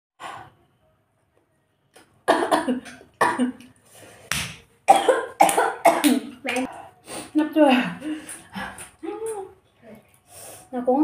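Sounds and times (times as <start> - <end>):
woman coughing: 2.3 - 3.6, 4.9 - 6.3.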